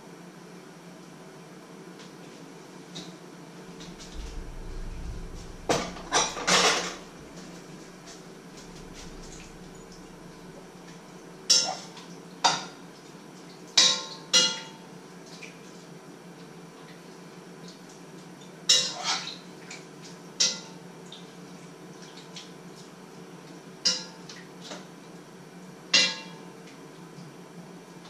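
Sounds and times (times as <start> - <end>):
metal kitchenware clattering: 3.9 - 7.6.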